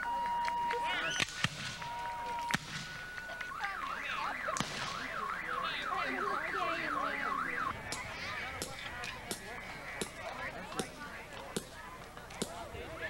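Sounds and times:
car alarm wailing: 0.0 - 1.2, 1.8 - 8.1
musket shots: 1.2 - 1.8, 4.6 - 5.2.

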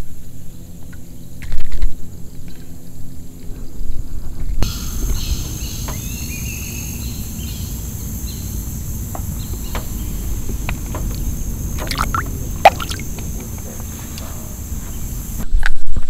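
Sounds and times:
high insect drone: 0.0 - 15.5
low rumble: 3.6 - 15.5
bird chirps: 4.6 - 15.4.

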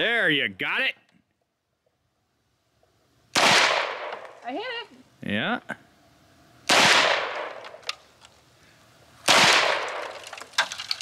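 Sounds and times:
gunshots with echoing tail: 3.4 - 4.2, 6.7 - 7.6, 9.3 - 10.2.

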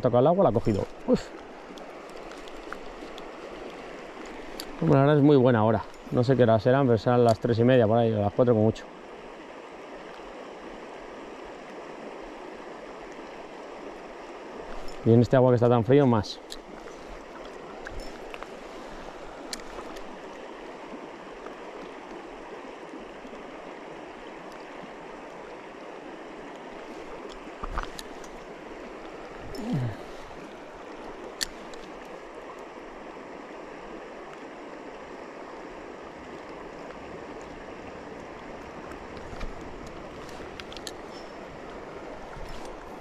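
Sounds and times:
river rushing over stones: 0.0 - 43.0
light clicks: 39.1 - 41.2.

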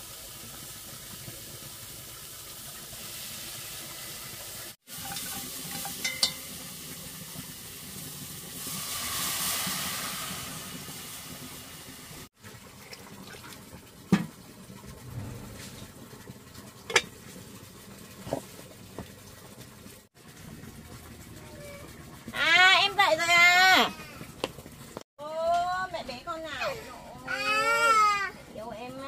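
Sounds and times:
liquid hissing in pot: 0.0 - 12.3
metal pot clinks: 4.9 - 6.7, 16.9 - 17.1.

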